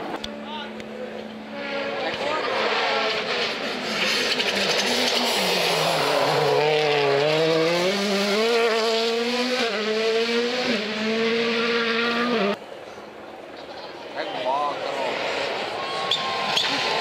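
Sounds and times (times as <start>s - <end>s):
rally car engine revving: 0.0s - 12.6s, 14.8s - 17.0s.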